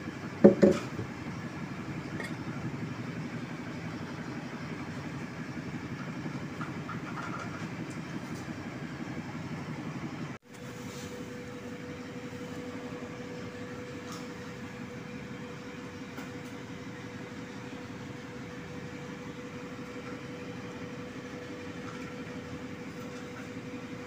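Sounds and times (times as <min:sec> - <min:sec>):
steady hum: 0:08.6 - 0:24.0.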